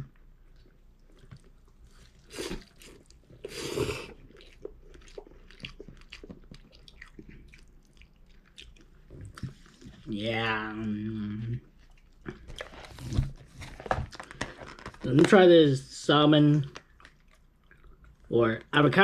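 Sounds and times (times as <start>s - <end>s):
chewing with wet clicks: 0.1s - 3.5s, 4.1s - 10.0s, 11.7s - 12.7s, 16.7s - 18.3s
person slurping noodles: 2.2s - 4.4s.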